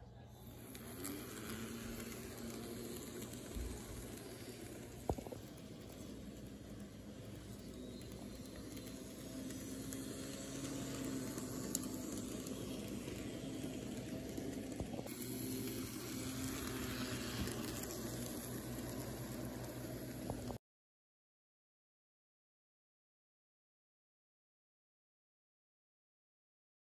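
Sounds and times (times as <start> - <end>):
model train motor whirring: 0.1 - 20.6
small wheels rolling on rails: 0.2 - 20.6.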